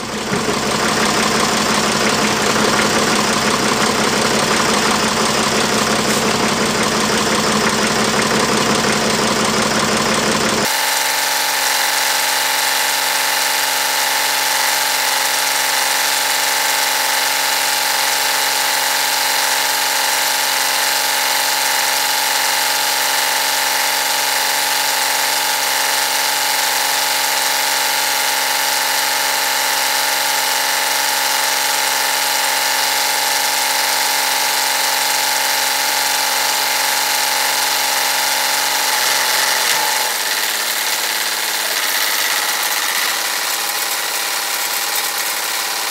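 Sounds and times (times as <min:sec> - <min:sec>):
tractor engine idling: 0:00.0 - 0:10.7, 0:32.0 - 0:45.9.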